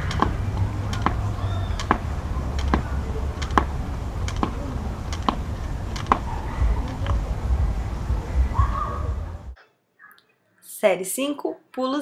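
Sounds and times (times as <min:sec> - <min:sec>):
skipping rope slapping pavement: 0:00.0 - 0:07.3
low steady rumble: 0:00.0 - 0:09.6.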